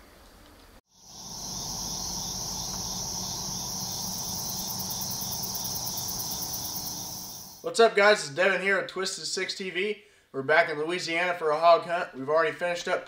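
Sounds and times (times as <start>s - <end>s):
crickets trilling: 0.9s - 7.6s.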